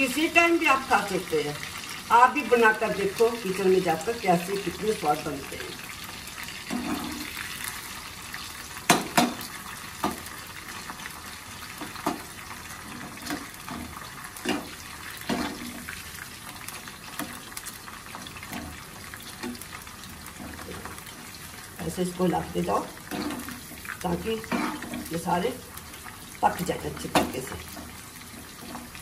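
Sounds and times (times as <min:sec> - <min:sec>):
corn sizzling in hot oil: 0:00.0 - 0:29.0.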